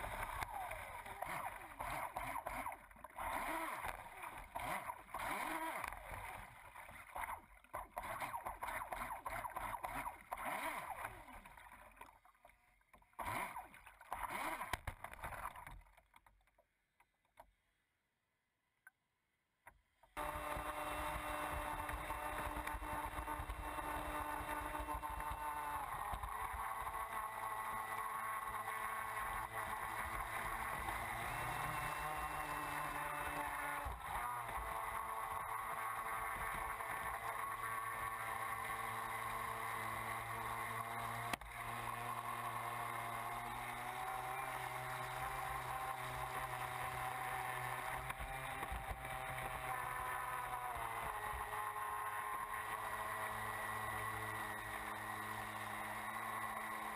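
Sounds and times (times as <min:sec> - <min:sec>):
boat motor whine: 0:20.2 - 0:56.9.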